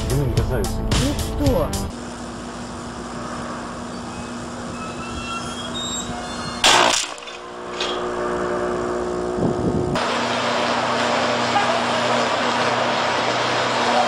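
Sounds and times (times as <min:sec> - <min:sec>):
electrical hum with squealing: 0:01.9 - 0:14.0
electrical arc burst: 0:06.6 - 0:10.0.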